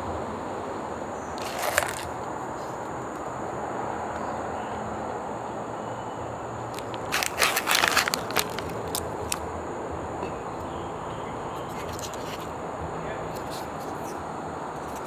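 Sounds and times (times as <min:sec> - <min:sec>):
steady background hiss: 0:00.0 - 0:15.0
sharp crackling clicks: 0:06.7 - 0:09.4.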